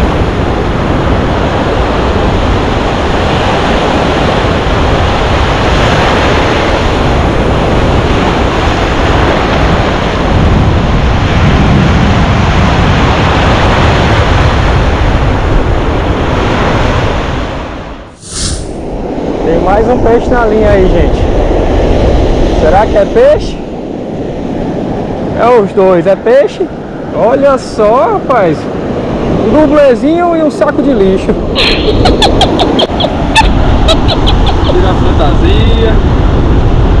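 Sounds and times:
breaking surf: 0.0s - 37.0s
wind buffeting microphone: 0.0s - 37.0s.

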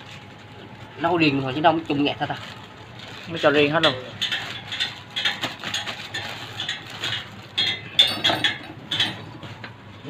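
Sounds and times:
tools tapping steel wheel spokes: 6.6s - 9.8s.

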